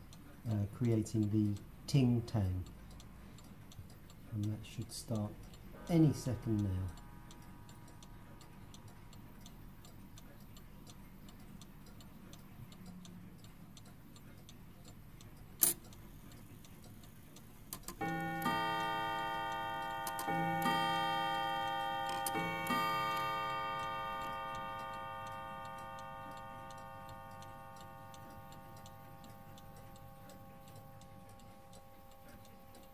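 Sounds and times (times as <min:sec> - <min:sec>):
clock mechanism click: 0:00.0 - 0:32.9
clock ticking: 0:00.0 - 0:32.9
clock gong chime: 0:05.7 - 0:08.3, 0:18.0 - 0:32.6.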